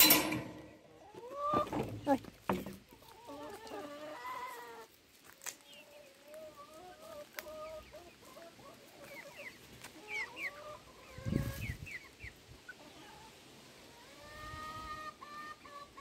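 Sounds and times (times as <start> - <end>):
chickens clucking: 0.0 - 16.0
chicks peeping: 0.9 - 16.0.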